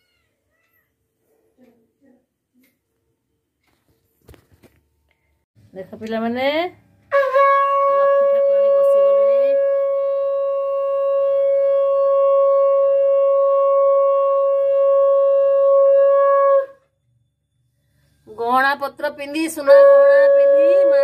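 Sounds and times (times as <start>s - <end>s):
conch shell blown: 7.1s - 17.0s, 19.6s - 21.0s.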